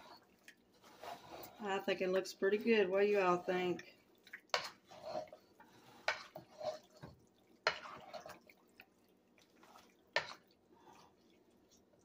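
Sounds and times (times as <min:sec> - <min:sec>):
spoon scraping a pot: 0:00.0 - 0:03.9, 0:04.5 - 0:08.6, 0:09.5 - 0:11.1
spoon stirring thick sauce: 0:00.0 - 0:12.0.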